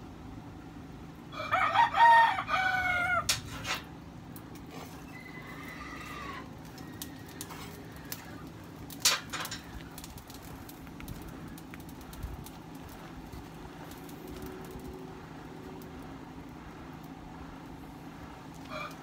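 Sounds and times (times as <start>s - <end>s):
rooster crowing: 1.3s - 3.3s, 5.0s - 8.4s, 18.6s - 19.0s.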